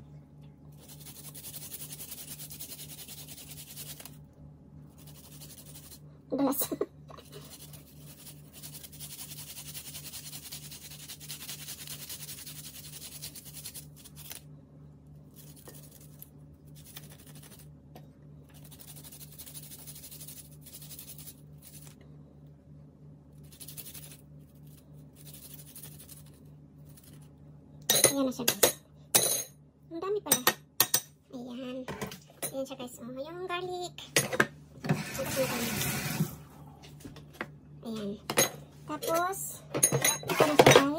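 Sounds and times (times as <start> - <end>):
garlic grating on plastic grater: 0.8 - 4.2, 4.9 - 6.0, 7.2 - 14.4, 15.3 - 17.6, 18.5 - 22.0, 23.4 - 27.2, 35.0 - 36.2.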